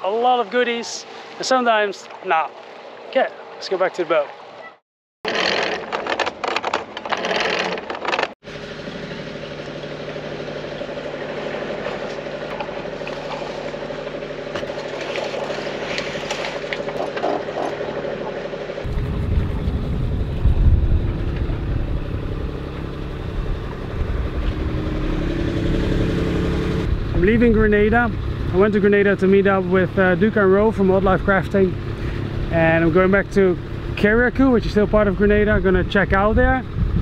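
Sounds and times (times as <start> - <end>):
boat engine running: 0.0 - 37.0
loud low rumble: 18.8 - 33.3.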